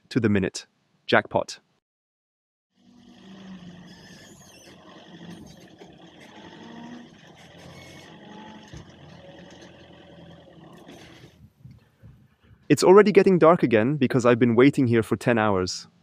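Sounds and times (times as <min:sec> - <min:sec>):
forklift machine hum: 0:02.8 - 0:11.6
faint whines: 0:02.8 - 0:12.7.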